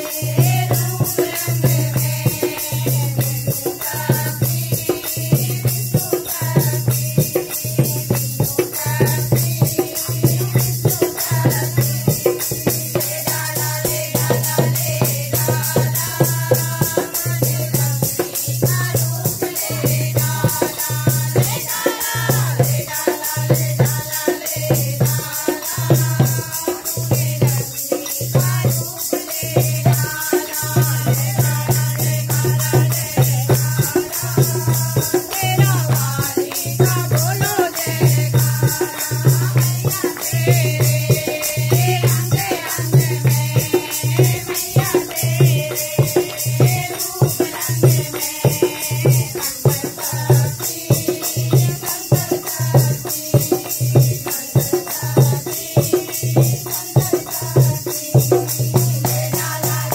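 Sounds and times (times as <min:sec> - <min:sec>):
rattling percussion: 0:00.0 - 0:59.9
women singing in chorus: 0:00.0 - 0:59.9.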